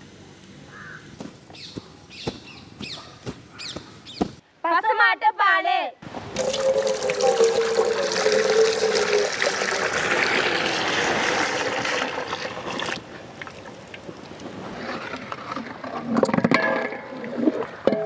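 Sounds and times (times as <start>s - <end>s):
liquid pouring into metal bowl: 6.4s - 13.0s.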